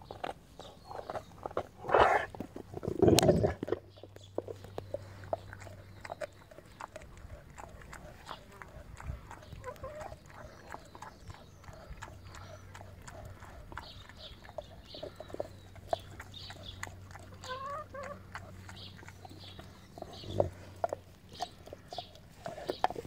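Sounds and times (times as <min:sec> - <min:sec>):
dog chewing: 0:00.0 - 0:23.0
hen calling: 0:17.3 - 0:18.2.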